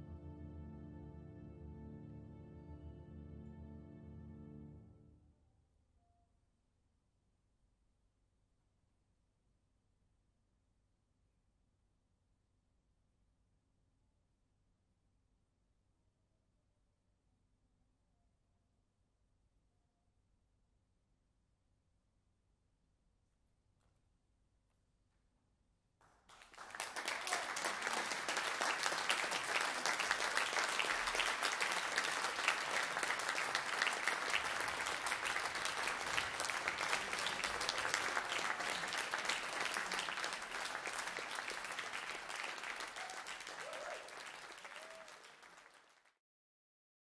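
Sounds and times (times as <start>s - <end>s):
audience applause: 26.3s - 46.1s.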